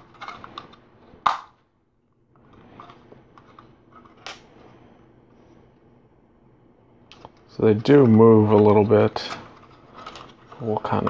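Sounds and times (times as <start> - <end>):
sharp plastic snap: 1.3 - 1.5.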